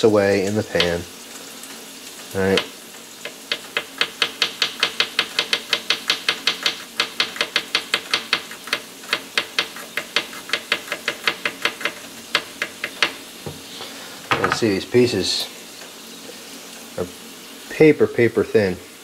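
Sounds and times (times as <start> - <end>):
knife tapping wooden cutting board: 0.8 - 1.0, 2.6 - 13.6, 14.3 - 14.7.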